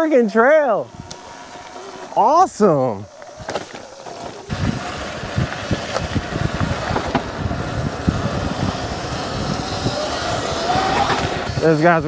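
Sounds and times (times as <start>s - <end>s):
wind buffeting microphone: 0.8s - 12.0s.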